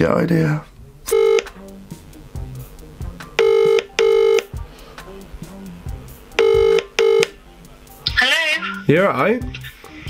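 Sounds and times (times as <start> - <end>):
telephone ringback tone: 1.1 - 1.5, 3.4 - 4.6, 6.4 - 7.4.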